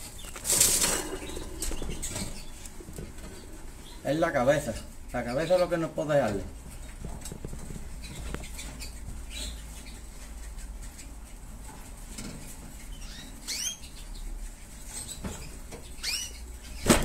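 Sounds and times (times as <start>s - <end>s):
bird chirps: 0.0s - 5.8s, 8.0s - 11.0s, 12.8s - 16.9s
birds fluttering and scratching: 0.0s - 17.0s.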